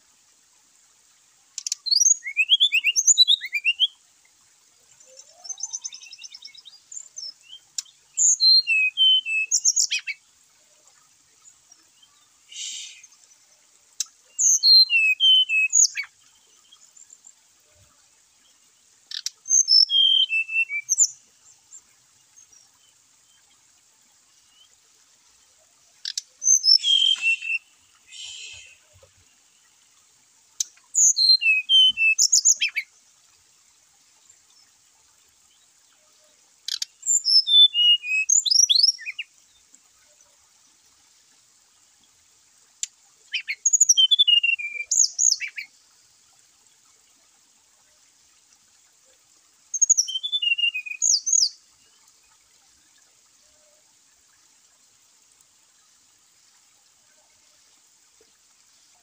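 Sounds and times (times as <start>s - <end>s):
bird whistling song: 1.6s - 4.0s, 7.2s - 10.2s, 12.5s - 13.1s, 14.4s - 16.1s, 19.1s - 21.2s, 26.4s - 29.0s, 30.9s - 32.9s, 36.7s - 39.2s, 43.3s - 45.7s, 49.7s - 51.6s.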